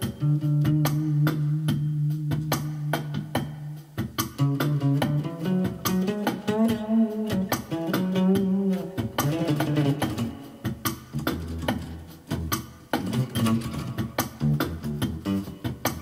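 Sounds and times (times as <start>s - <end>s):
drum machine beat: 0.0s - 16.0s
bass guitar single notes: 4.4s - 16.0s.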